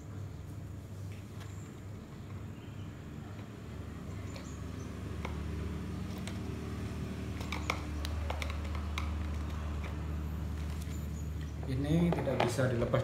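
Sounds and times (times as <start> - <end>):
small plastic clicks: 7.3 - 10.0.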